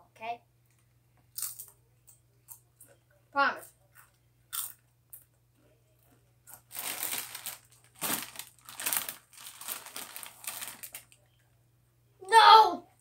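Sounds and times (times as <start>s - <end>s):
chip bag crinkling: 6.5s - 11.2s.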